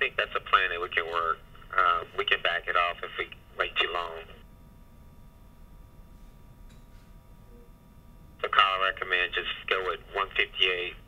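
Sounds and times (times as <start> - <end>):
radio hiss and hum: 0.0 - 11.0.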